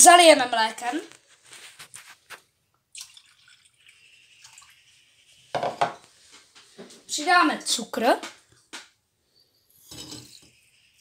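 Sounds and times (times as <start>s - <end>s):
milk pouring into pot: 2.7s - 6.1s.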